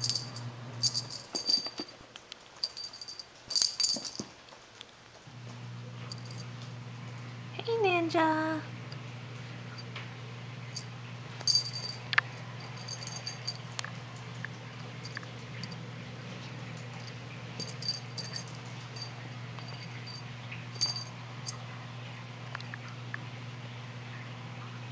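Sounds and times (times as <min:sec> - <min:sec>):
high tinkling: 0:00.0 - 0:02.0, 0:02.6 - 0:04.3, 0:11.5 - 0:13.8, 0:17.0 - 0:21.6
steady low hum: 0:00.0 - 0:02.0, 0:05.2 - 0:24.9.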